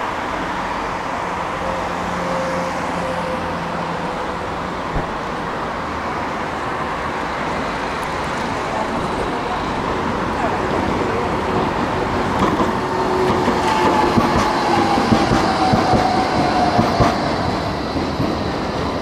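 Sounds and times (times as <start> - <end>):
city street traffic: 0.0 - 19.0.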